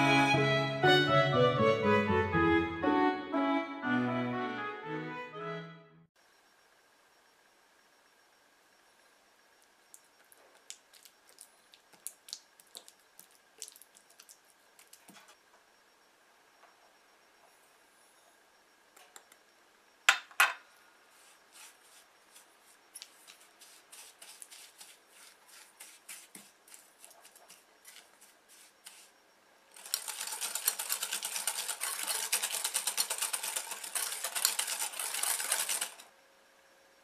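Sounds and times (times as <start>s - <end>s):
spatula scraping glass bowl: 23.2s - 26.9s
fast mixing against glass: 29.8s - 36.0s.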